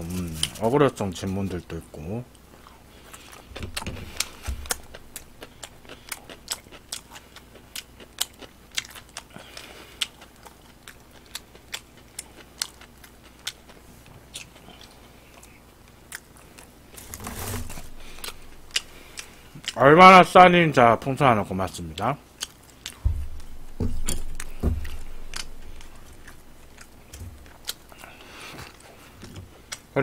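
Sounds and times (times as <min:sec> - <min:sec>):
chewing with mouth clicks: 0:02.5 - 0:17.0, 0:18.0 - 0:19.8, 0:22.3 - 0:30.0.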